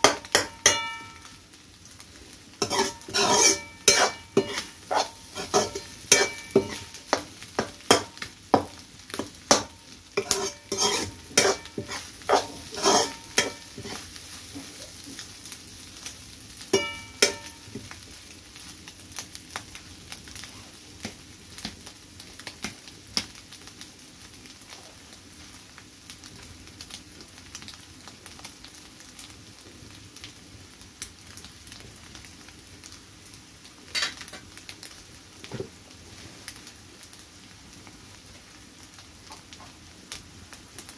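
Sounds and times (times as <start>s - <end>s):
metal spatula scraping steel pan: 0.0s - 1.3s, 2.6s - 8.1s, 9.5s - 14.1s, 16.8s - 17.6s
frying sizzle: 0.0s - 40.9s
ringing clank of pan: 0.4s - 1.3s, 16.8s - 17.6s.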